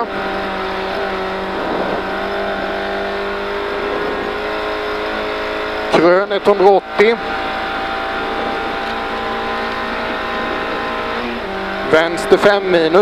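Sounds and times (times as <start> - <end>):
car engine at steady revs: 0.0 - 13.0
tyre and road noise: 0.0 - 13.0.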